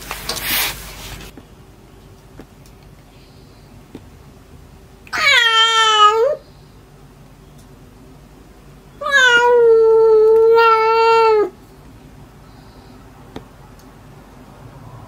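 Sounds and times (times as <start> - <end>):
kitten meowing: 5.1 - 6.4, 9.0 - 11.6.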